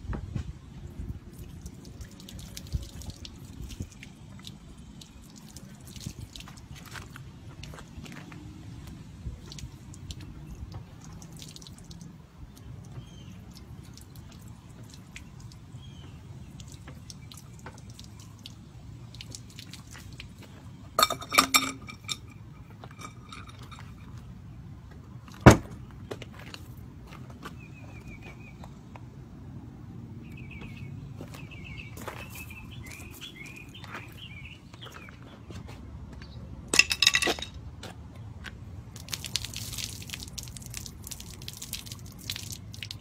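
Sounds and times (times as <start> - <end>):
water pouring and dripping: 1.2 - 8.0, 8.8 - 24.3, 38.9 - 43.0
ringing metallic clanks: 21.0 - 24.1.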